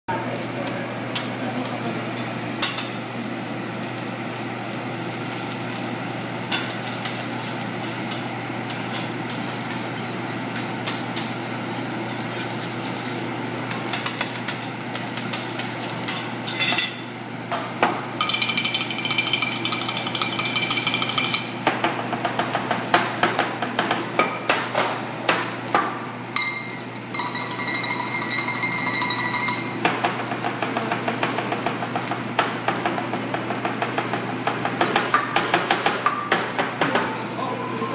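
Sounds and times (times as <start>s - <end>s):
rice sizzling: 0.1s - 37.9s
rapid ringing metal clangs: 18.2s - 21.6s, 26.4s - 29.9s.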